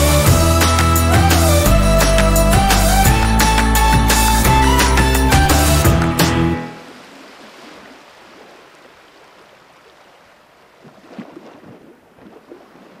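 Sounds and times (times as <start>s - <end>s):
water washing: 5.7s - 13.0s
small water splashes: 6.8s - 13.0s.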